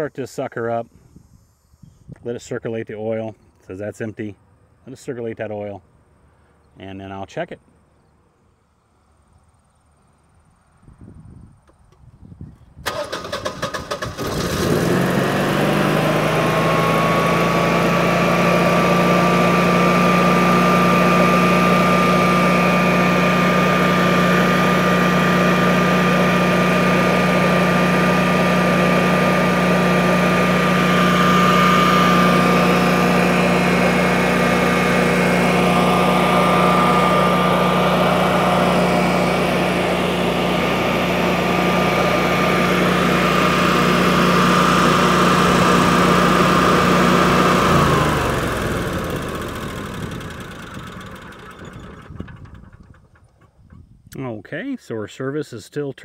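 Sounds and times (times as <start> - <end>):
electric starter cranking: 12.8 - 17.6, 18.5 - 53.7
generator engine running: 12.9 - 53.7.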